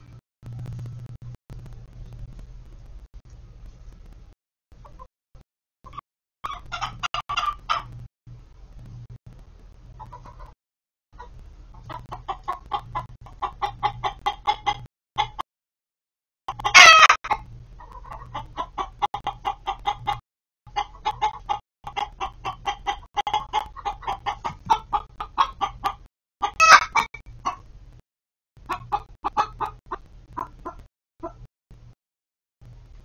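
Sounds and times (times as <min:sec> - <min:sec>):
hen clucking: 0:05.8 - 0:08.1, 0:09.9 - 0:10.6, 0:11.2 - 0:15.4, 0:16.5 - 0:27.7, 0:28.6 - 0:31.5
hen squawking: 0:05.9 - 0:07.9, 0:16.5 - 0:20.2, 0:20.8 - 0:27.6.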